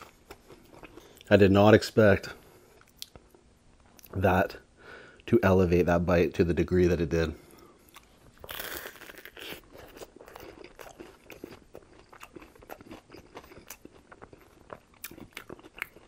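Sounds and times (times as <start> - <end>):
chewing with wet mouth clicks: 2.8 - 3.3, 7.9 - 16.0
sandwich bite crunch: 7.9 - 16.0.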